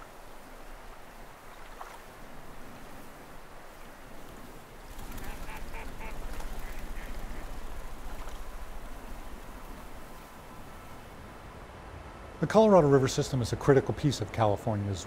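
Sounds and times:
duck quacking: 5.2s - 7.6s.

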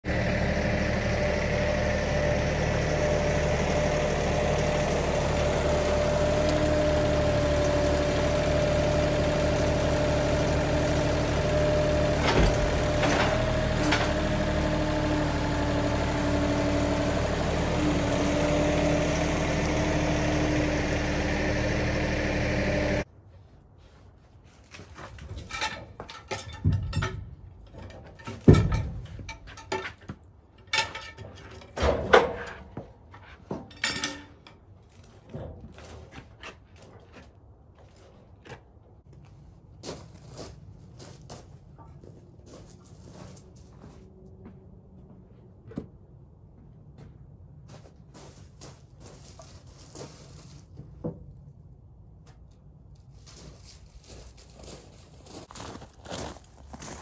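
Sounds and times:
tractor engine running: 0.0s - 23.1s
metal clanks: 25.3s - 32.8s, 33.4s - 34.6s.

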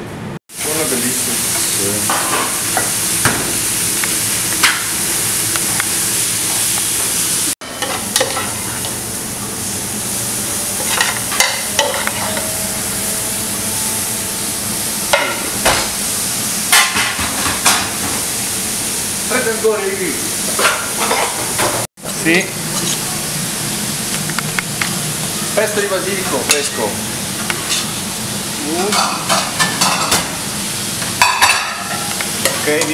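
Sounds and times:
steady kitchen hiss: 0.5s - 32.9s
pans and utensils clinking: 1.5s - 3.6s, 7.6s - 9.0s, 10.7s - 13.0s, 16.7s - 18.2s, 20.5s - 21.9s, 28.7s - 30.3s, 31.1s - 32.9s.

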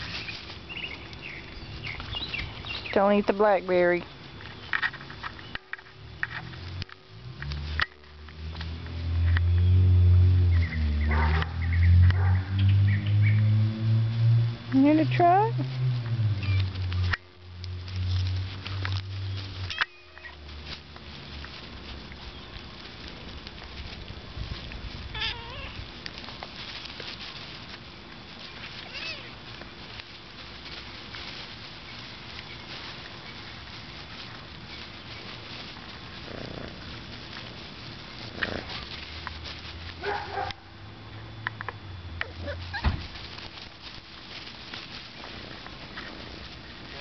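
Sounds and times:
puppies rustling in grass: 0.0s - 47.0s
low rumble: 5.8s - 19.7s.

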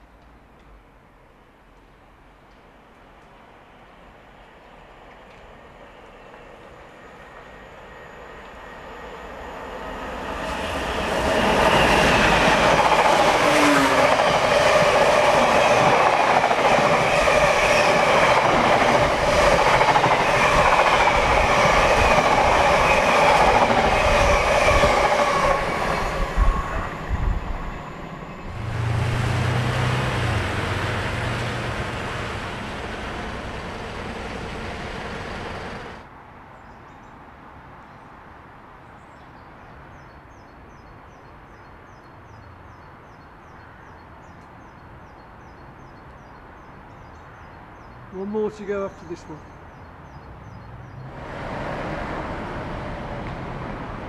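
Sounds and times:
train wheels clattering on rails: 29.7s - 36.0s.

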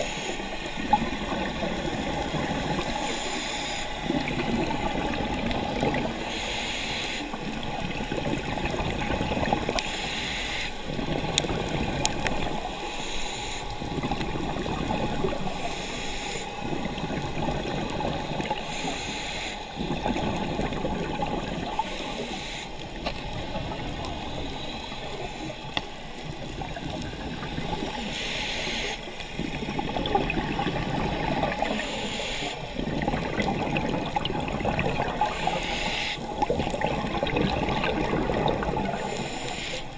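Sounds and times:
regulator inhale hiss: 0.0s - 1.2s, 2.0s - 4.2s, 6.1s - 7.6s, 9.8s - 11.6s, 12.3s - 14.0s, 15.2s - 17.0s, 18.3s - 19.9s, 21.7s - 26.2s, 27.4s - 29.4s, 30.8s - 32.8s, 35.0s - 36.4s, 38.8s - 39.9s
exhale bubbling: 0.0s - 39.9s.

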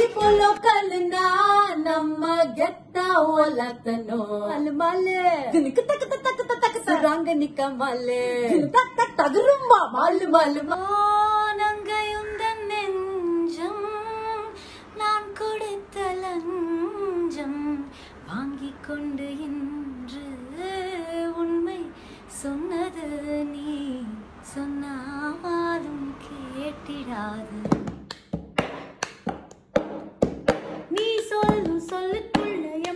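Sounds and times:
singer breathing: 14.6s - 15.0s, 17.9s - 18.3s, 21.9s - 22.3s.

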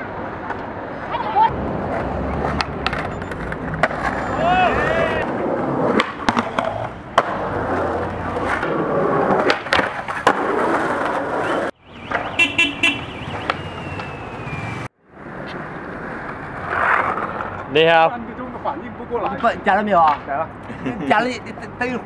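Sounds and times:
skateboard wheels rolling on stone: 0.0s - 12.3s, 13.3s - 18.1s
street noise: 0.0s - 22.0s
skateboard clacks: 0.1s - 4.2s, 5.9s - 12.3s
car horn toots: 11.4s - 13.9s.

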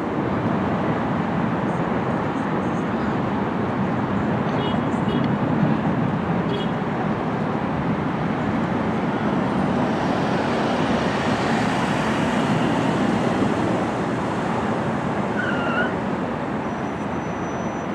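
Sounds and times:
jet engines rumbling: 5.4s - 17.9s.

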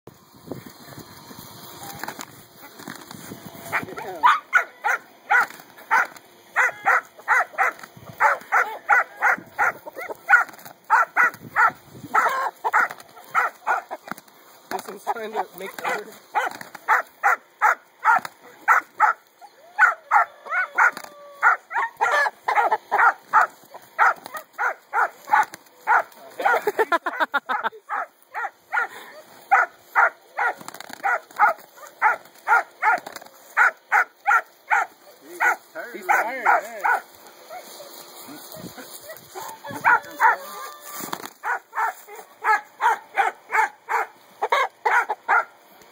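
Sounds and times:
dog barking: 3.7s - 14.0s, 15.8s - 19.2s, 19.8s - 26.7s, 27.5s - 28.9s, 29.5s - 33.0s, 33.6s - 37.7s, 39.0s - 40.5s, 41.4s - 45.5s.

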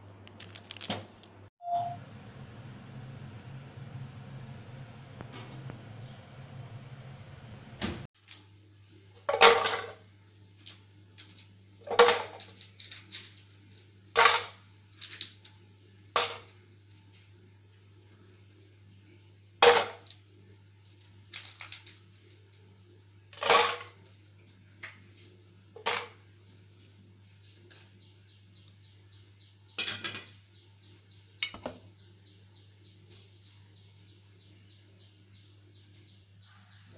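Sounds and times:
low hum: 1.7s - 8.1s.

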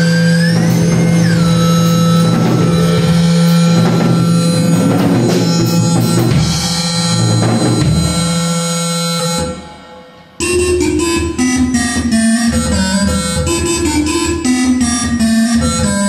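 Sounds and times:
drum and cymbal strokes: 0.0s - 10.4s
synthesizer sustained tone: 0.0s - 11.1s.

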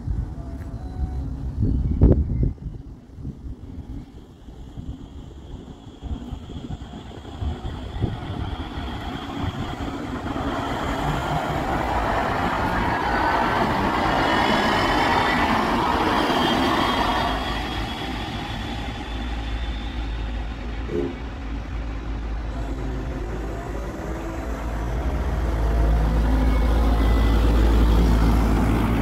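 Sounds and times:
train wheels rumbling on rails: 0.0s - 29.0s
faint high whine: 13.8s - 28.2s.

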